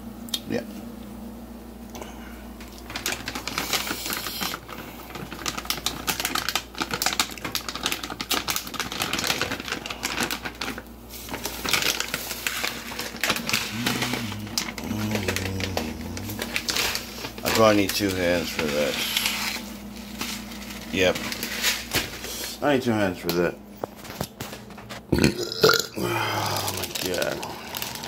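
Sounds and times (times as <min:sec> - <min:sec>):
plastic bags crinkling: 0:02.5 - 0:28.0.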